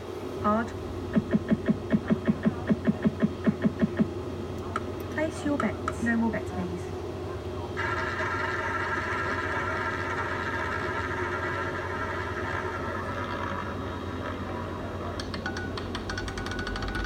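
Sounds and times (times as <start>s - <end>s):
roulette rolling whir: 7.8s - 17.0s
roulette ball clicks: 15.2s - 17.0s.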